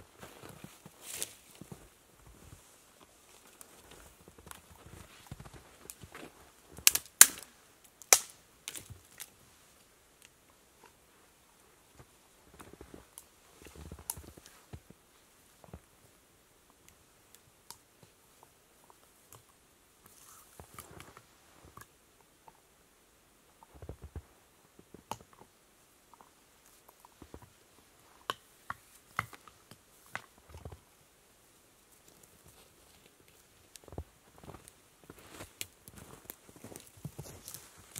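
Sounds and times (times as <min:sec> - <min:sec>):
dry twigs snapping: 0:06.8 - 0:09.3.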